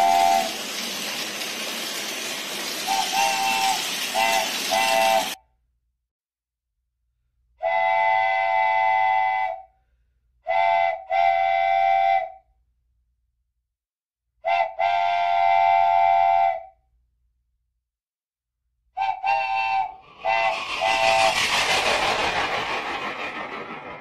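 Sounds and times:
toy train horn blasts: 0:00.0 - 0:00.5, 0:02.9 - 0:05.4, 0:14.5 - 0:16.6.

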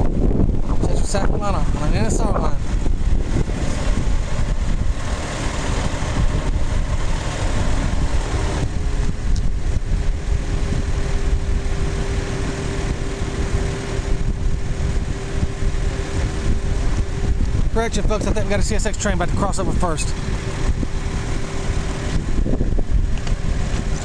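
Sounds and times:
low engine rumble: 0:00.0 - 0:24.0
steady hum: 0:00.0 - 0:24.0
wind noise on microphone: 0:00.0 - 0:24.0.

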